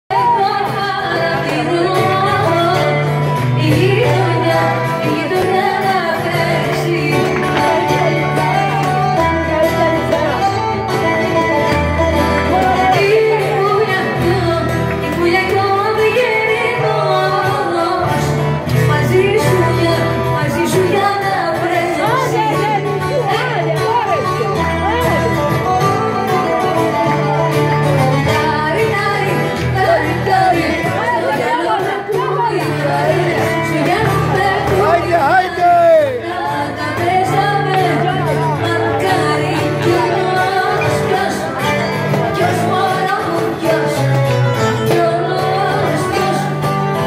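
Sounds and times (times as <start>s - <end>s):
dance music with singing: 28.6s - 44.3s.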